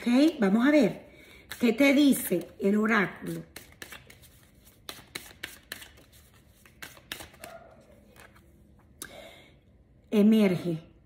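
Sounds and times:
cards being shuffled: 0:03.2 - 0:08.5.

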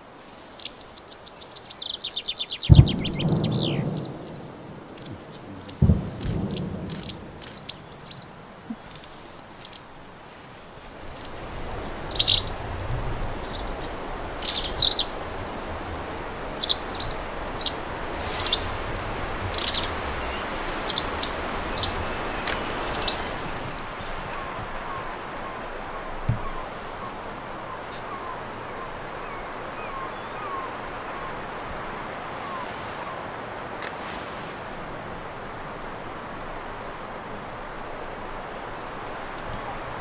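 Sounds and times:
small birds chirping: 0:00.4 - 0:10.0, 0:10.6 - 0:12.7, 0:13.3 - 0:33.3.

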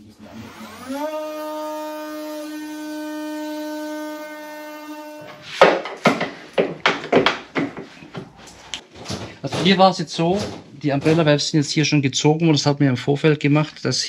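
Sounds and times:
oscillating multi-tool buzzing: 0:00.2 - 0:05.4
scraping and knocking of prying: 0:05.2 - 0:11.4.

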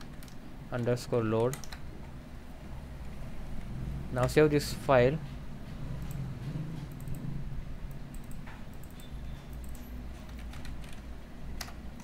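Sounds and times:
steady low hum: 0:00.0 - 0:12.0
keyboard keystrokes: 0:01.4 - 0:01.8, 0:07.9 - 0:11.0, 0:11.6 - 0:12.0.

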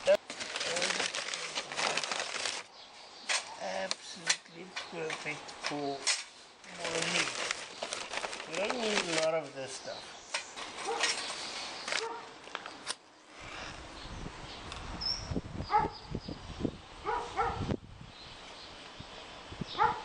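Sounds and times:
dog barking: 0:10.8 - 0:11.1, 0:12.0 - 0:12.4, 0:15.7 - 0:16.0, 0:17.0 - 0:17.7, 0:19.8 - 0:20.0.

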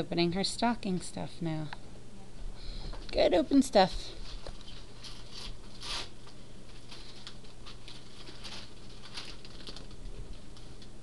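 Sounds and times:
wrapping paper rustling and tearing: 0:04.2 - 0:10.8.

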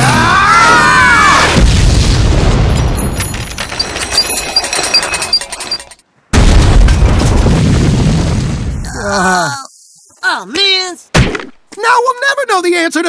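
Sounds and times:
loud boom: 0:01.4 - 0:02.8
small clinks of wreckage: 0:02.8 - 0:06.0.

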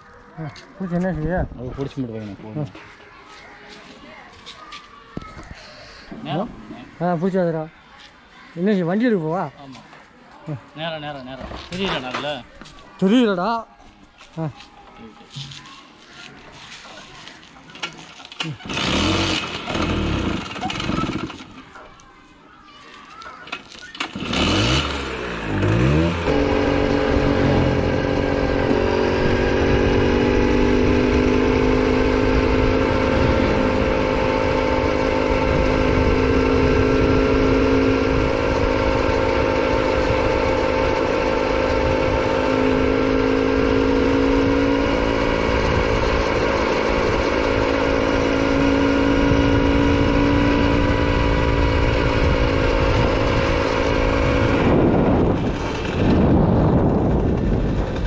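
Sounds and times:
two-stroke engine running: 0:18.3 - 0:21.6, 0:24.0 - 0:58.0
wind noise from riding: 0:25.6 - 0:58.0.

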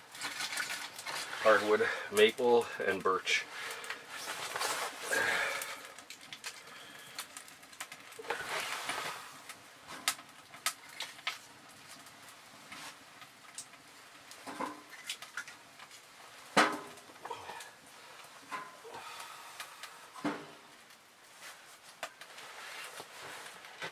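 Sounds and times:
firewood rustling: 0:00.0 - 0:23.9.

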